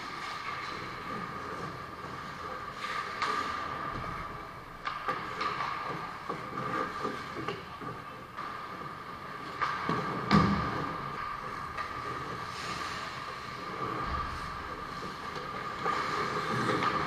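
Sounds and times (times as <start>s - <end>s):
skate blades scraping ice: 0.0s - 17.0s
sticks and puck clicking: 0.2s - 14.0s, 14.9s - 17.0s.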